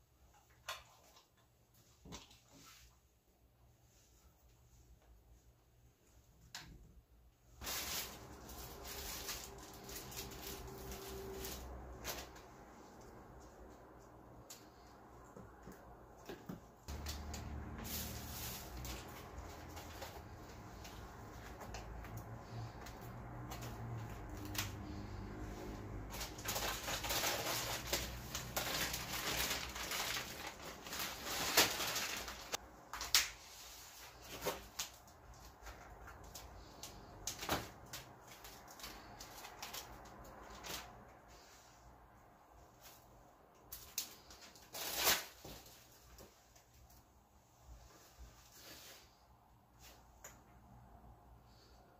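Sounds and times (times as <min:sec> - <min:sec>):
plastic packaging crinkling: 0:07.6 - 0:12.4, 0:26.0 - 0:33.4
plastic bag rustling: 0:07.6 - 0:13.0, 0:16.9 - 0:41.2.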